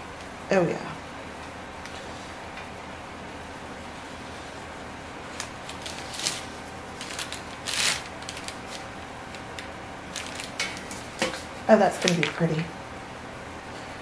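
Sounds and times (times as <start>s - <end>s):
paper rustling: 5.3s - 12.3s.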